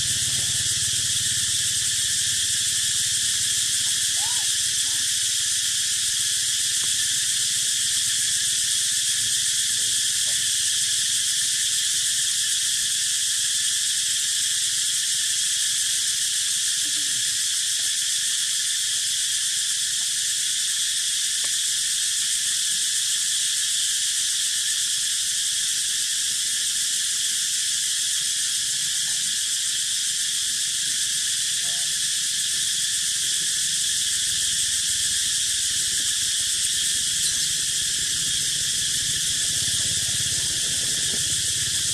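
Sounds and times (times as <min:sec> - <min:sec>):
high-pitched insect chorus: 0:00.0 - 0:41.9.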